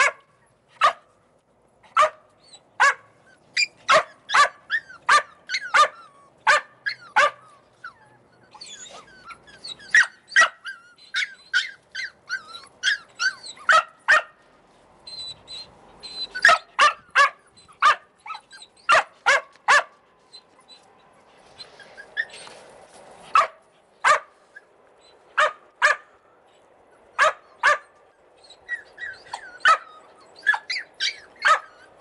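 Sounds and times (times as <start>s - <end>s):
puppies yapping: 0.0s - 1.1s, 1.8s - 14.4s, 15.0s - 32.0s
puppies whining: 2.4s - 13.9s, 15.0s - 19.3s, 20.2s - 22.7s, 24.5s - 25.4s, 26.2s - 32.0s.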